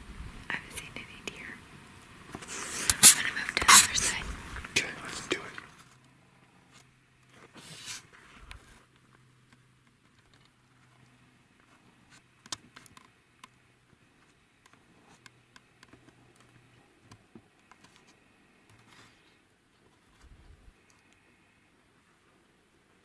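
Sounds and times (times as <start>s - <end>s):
soft rustle: 2.2s - 23.0s
faint small clicks: 20.2s - 21.3s.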